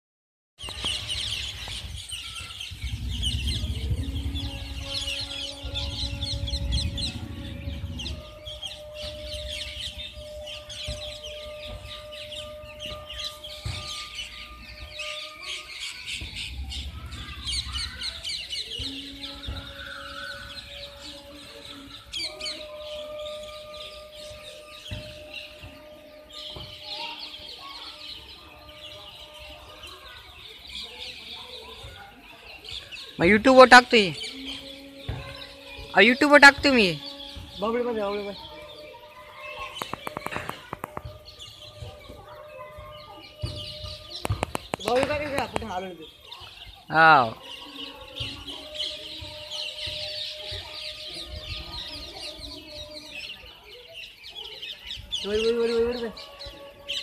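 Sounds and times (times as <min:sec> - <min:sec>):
flock of parrots calling: 0:00.6 - 0:57.0
low rumble: 0:02.6 - 0:08.7.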